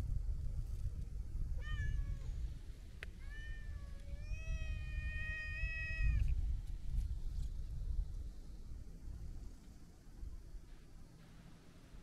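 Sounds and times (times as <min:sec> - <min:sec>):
cat meowing: 0:03.2 - 0:06.3.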